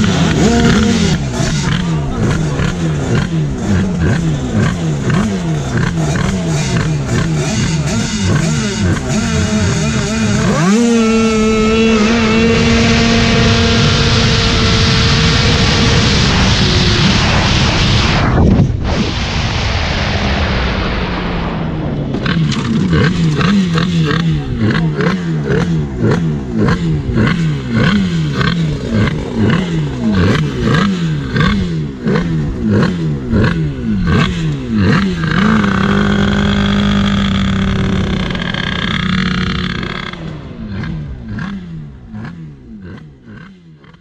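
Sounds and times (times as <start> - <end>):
scooter engine revving: 0.0 - 17.5, 22.1 - 44.0
wind rushing: 11.3 - 23.6.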